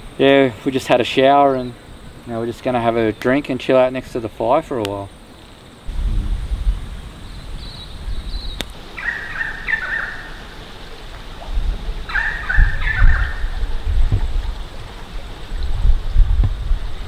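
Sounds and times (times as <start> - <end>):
low rumble: 5.9 - 8.6
bird chattering calls: 7.6 - 10.6, 12.1 - 13.6.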